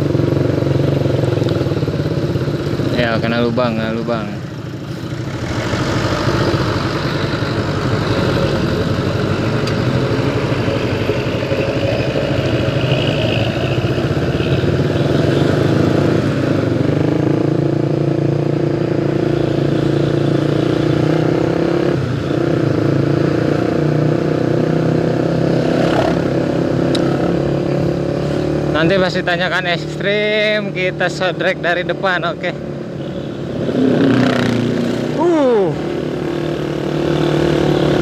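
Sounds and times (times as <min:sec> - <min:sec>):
following vehicle engine: 0:00.0 - 0:38.0
bus engine accelerating: 0:04.2 - 0:14.4.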